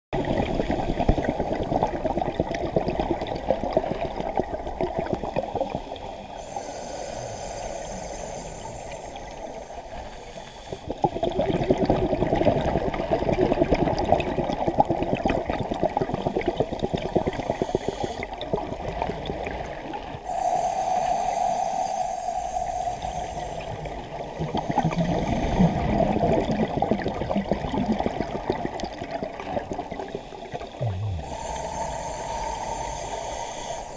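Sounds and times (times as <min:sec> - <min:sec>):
underwater exhaled bubbles: 0:00.2 - 0:33.9
regulator inhalation hiss: 0:05.8 - 0:11.1, 0:17.4 - 0:18.3, 0:20.2 - 0:26.0, 0:30.2 - 0:33.9.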